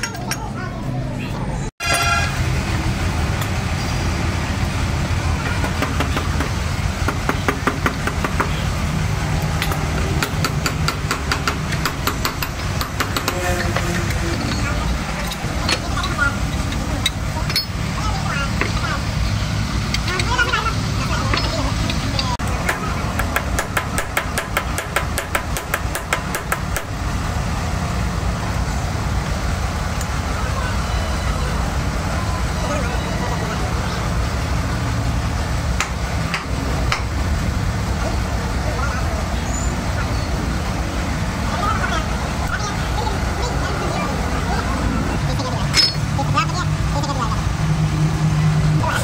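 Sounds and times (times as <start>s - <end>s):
hammer tapping on steel: 9.6s - 13.5s.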